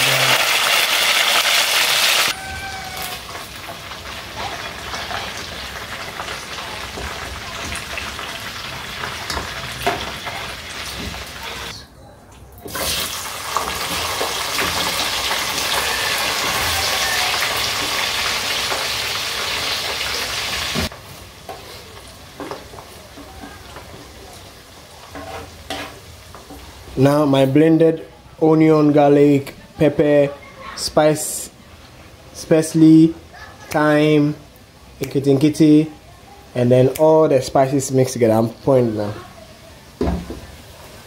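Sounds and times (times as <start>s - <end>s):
chicken sizzling in hot oil: 0.0s - 11.7s, 12.7s - 27.0s.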